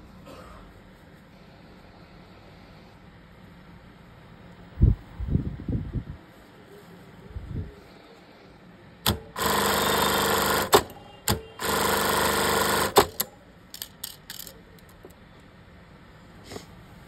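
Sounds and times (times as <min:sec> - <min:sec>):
sharp mechanical click: 0:09.0 - 0:12.0, 0:12.6 - 0:14.9
sewing machine running: 0:09.1 - 0:13.3.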